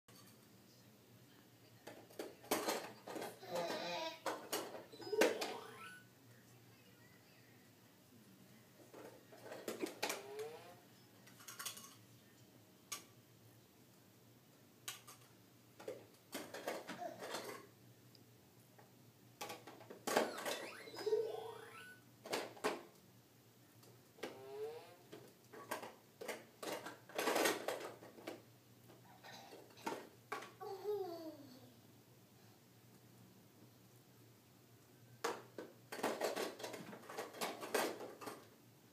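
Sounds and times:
plastic toy blocks clacking: 35.2 - 38.5.

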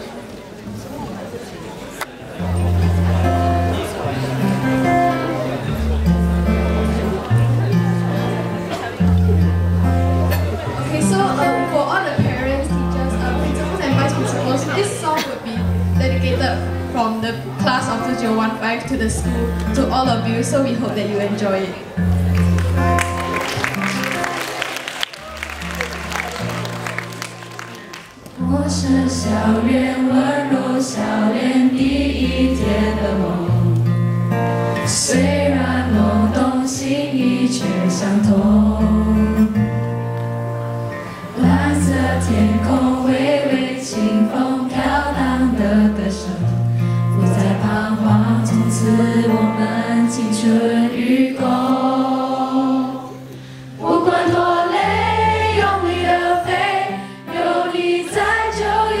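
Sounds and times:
acoustic guitar: 0.0 - 59.0
two girls singing: 28.4 - 33.8, 34.8 - 39.8, 41.3 - 59.0.

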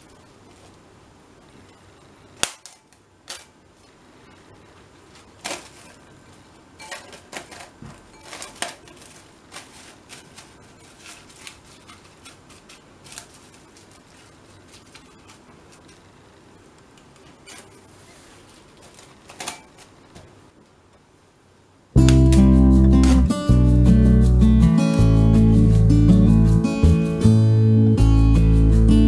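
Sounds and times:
cling film crackling and snapping: 2.4 - 4.0, 5.1 - 17.8, 22.0 - 23.3.

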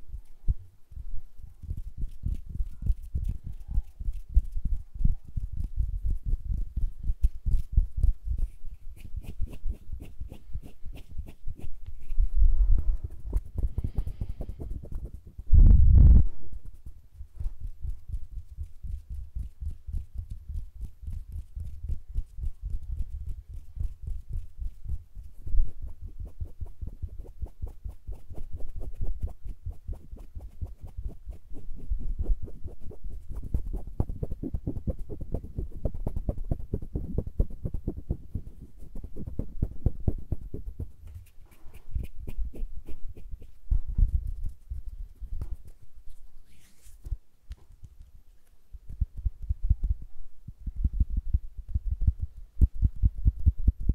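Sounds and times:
low rumble of air at mic: 0.0 - 41.1, 41.7 - 53.9
fingers brushing microphone: 0.0 - 53.9.

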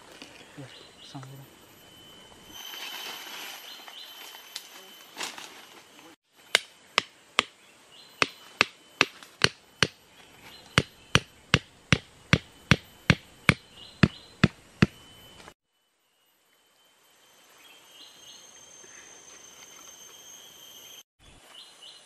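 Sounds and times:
hammer striking wooden stake: 6.5 - 7.6, 8.2 - 10.0, 10.7 - 15.0.

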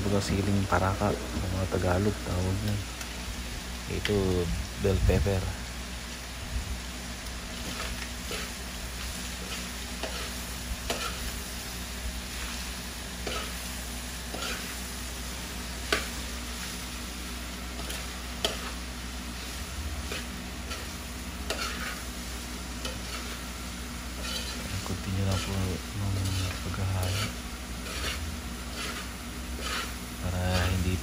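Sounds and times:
meat sizzling in pan: 0.0 - 31.0
metal spoon scraping pan: 7.6 - 8.6, 9.4 - 11.4, 13.2 - 13.6, 14.3 - 14.7, 17.8 - 18.8, 20.1 - 22.1, 22.8 - 23.4, 24.2 - 31.0.

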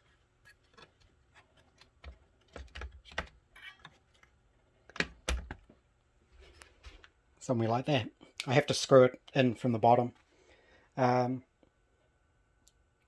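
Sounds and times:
plastic parts clicking and knocking: 0.4 - 5.8.

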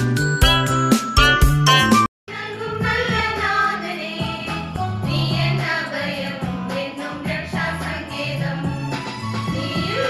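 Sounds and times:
musical accompaniment with bass line: 0.0 - 2.1
women singing in unison: 2.3 - 8.8.

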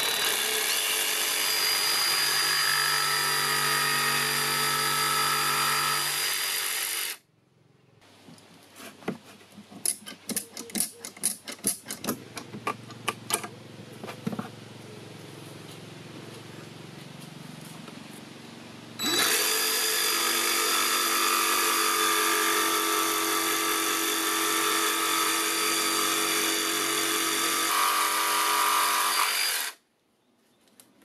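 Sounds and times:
jigsaw cutting wood: 0.0 - 7.2, 19.0 - 29.8.

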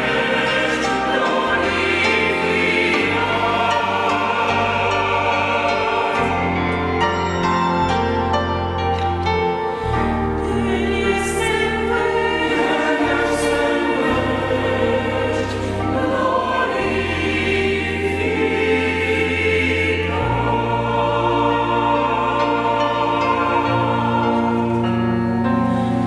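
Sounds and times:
church choir singing a hymn: 0.0 - 26.0.

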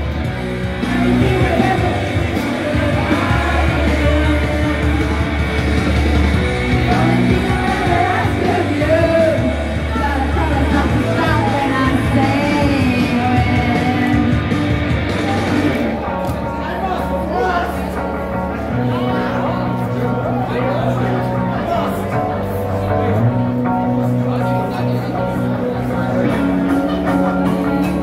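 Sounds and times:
karaoke backing track: 0.0 - 28.0
girl singing karaoke: 0.7 - 14.6
woman singing karaoke: 0.9 - 5.4, 6.9 - 14.5.

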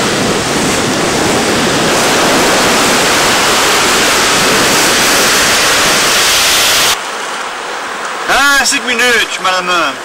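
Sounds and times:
surf breaking on rocky shore: 0.0 - 7.0.

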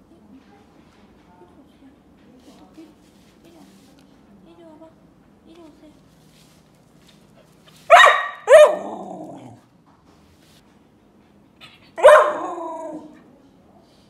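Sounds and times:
dog bark-howls: 7.9 - 9.6, 12.0 - 13.2.

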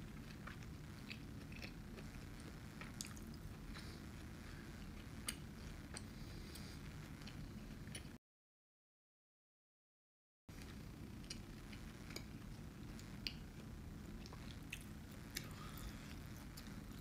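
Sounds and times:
person chewing: 0.0 - 4.0, 4.8 - 8.2, 11.2 - 17.0
low room hum: 0.0 - 8.2, 10.5 - 17.0.

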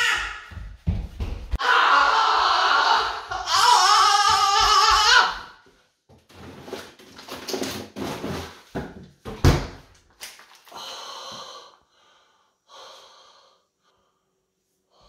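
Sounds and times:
freezer drawer rummaged: 6.3 - 9.0.

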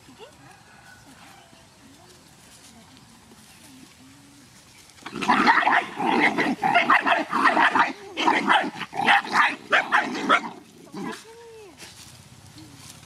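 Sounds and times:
dogs growling and snarling: 5.0 - 11.2.

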